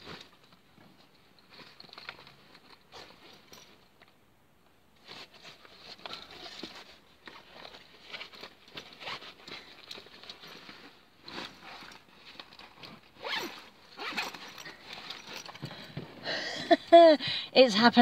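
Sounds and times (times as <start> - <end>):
backpack zip being pulled: 8.0 - 9.6, 13.0 - 15.6.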